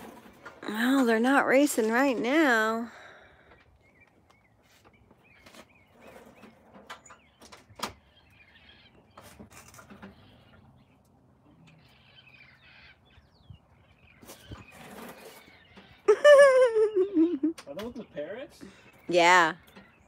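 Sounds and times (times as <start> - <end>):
parrots chirping and squawking: 8.0 - 11.0, 11.7 - 16.2.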